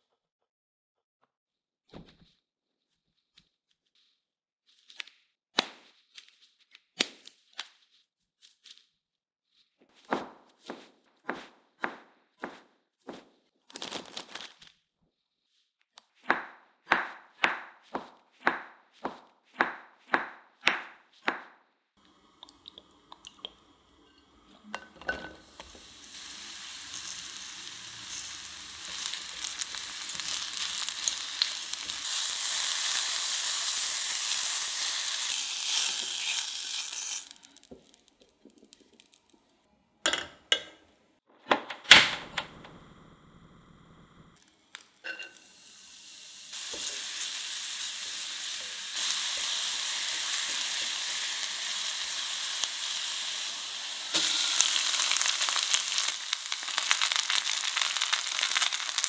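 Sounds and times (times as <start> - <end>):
knife chopping on wooden board: 10.0 - 13.2, 16.3 - 21.5
mushrooms sizzling in oil: 22.0 - 39.4, 44.4 - 59.0.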